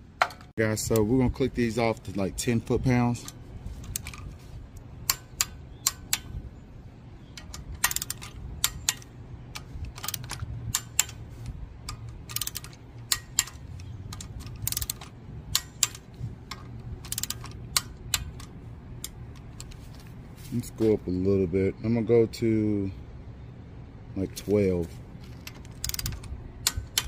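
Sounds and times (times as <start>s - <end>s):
torque wrench clicking: 3.2s - 6.4s, 7.3s - 19.8s, 25.3s - 27.0s.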